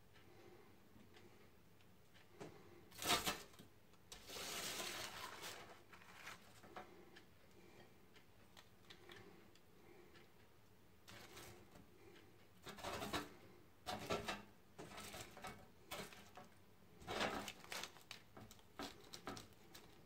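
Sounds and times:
spoon scraping across baking paper: 0:03.0 - 0:06.7, 0:12.6 - 0:13.3, 0:13.9 - 0:16.4, 0:17.0 - 0:18.1.

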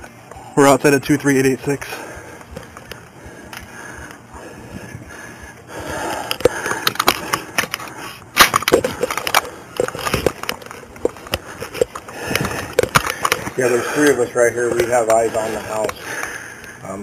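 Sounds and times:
camera rubbing against clothing: 0:06.8 - 0:16.0.

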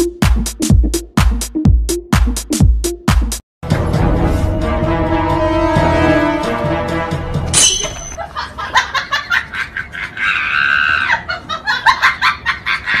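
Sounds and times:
music: 0:00.0 - 0:08.0
high-pitched laughter: 0:08.2 - 0:13.0.

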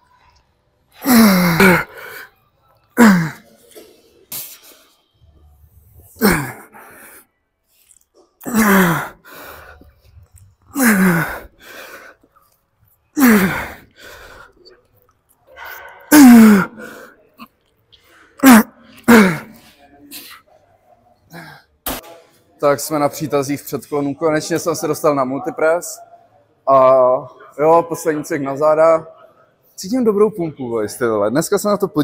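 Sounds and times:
man grunting with effort: 0:01.0 - 0:02.0, 0:03.0 - 0:03.4, 0:06.2 - 0:06.8, 0:08.4 - 0:09.2, 0:10.7 - 0:11.5, 0:13.2 - 0:13.8, 0:16.1 - 0:16.8, 0:18.4 - 0:19.5.

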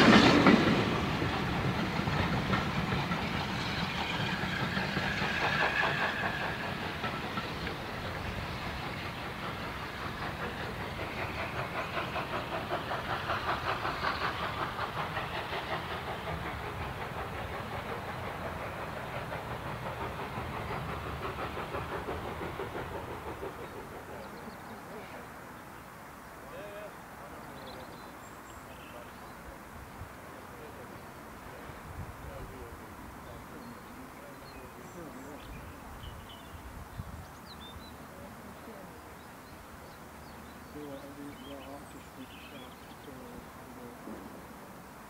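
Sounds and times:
train coaches clattering over rail joints: 0:00.0 - 0:24.0
steam hiss: 0:00.0 - 0:45.0.

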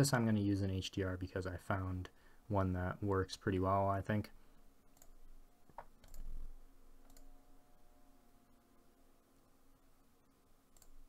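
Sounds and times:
faint steady hum: 0:00.0 - 0:11.0
computer mouse clicks: 0:04.9 - 0:07.4, 0:10.7 - 0:11.0.

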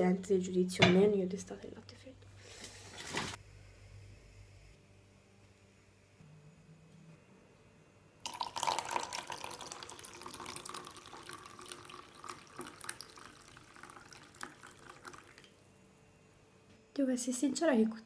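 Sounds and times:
water pouring into plastic cup: 0:08.2 - 0:15.6.

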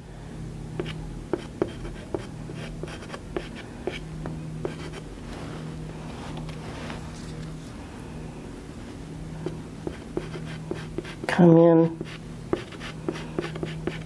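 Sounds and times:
low steady hum: 0:00.0 - 0:14.0
pastel stick scratching: 0:12.0 - 0:14.0.

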